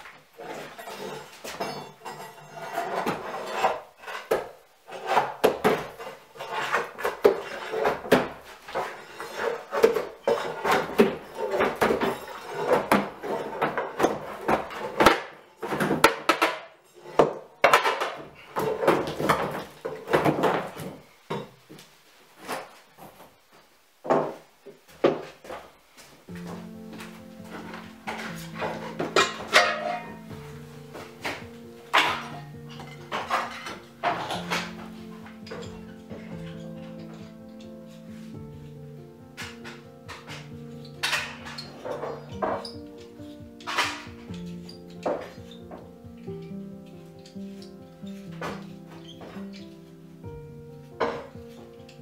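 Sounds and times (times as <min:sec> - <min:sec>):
pry bar scraping: 0:00.4 - 0:15.4.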